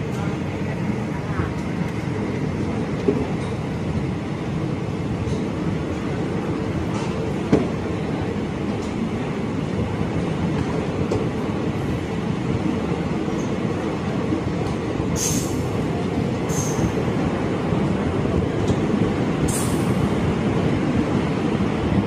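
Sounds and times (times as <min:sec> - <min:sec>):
train wheels rumbling on rail: 0:00.0 - 0:22.0.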